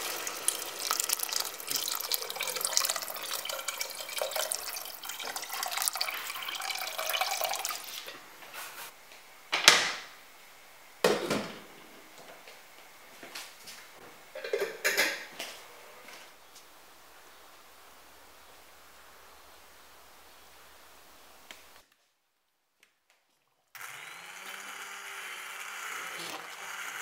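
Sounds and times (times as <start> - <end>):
water pouring into a pot: 0.0 - 8.2.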